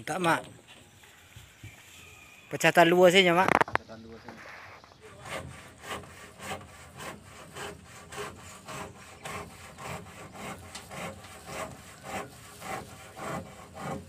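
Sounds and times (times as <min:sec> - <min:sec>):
rhythmic rasping strokes: 0:05.0 - 0:14.0.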